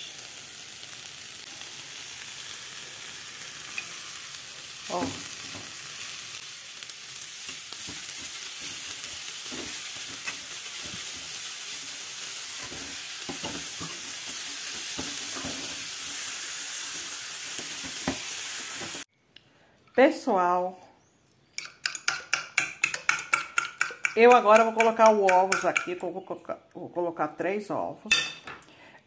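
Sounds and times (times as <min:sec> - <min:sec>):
vegetables sizzling in a frying pan: 0:00.0 - 0:19.1
fork tapping and scraping pan: 0:21.6 - 0:26.0.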